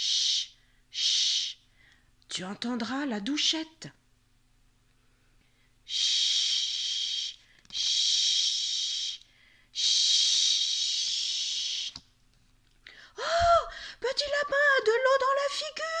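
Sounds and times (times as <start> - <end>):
mouth hissing: 0.0 - 1.6, 5.9 - 12.0.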